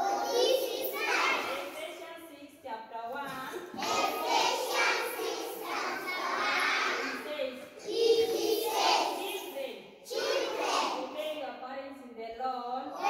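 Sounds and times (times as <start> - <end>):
children chanting in unison: 0.0 - 1.8, 3.8 - 11.2
teacher speaking: 0.0 - 12.1, 12.8 - 13.0.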